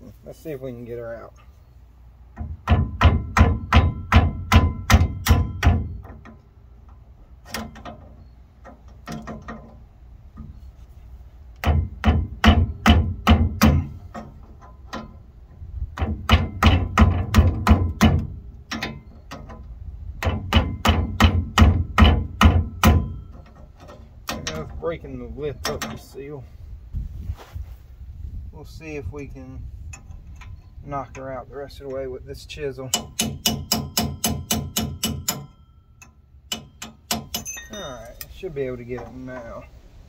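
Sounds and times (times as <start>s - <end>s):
metal-on-metal blows with ringing: 2.3s - 6.6s, 11.6s - 26.5s, 29.0s - 39.6s.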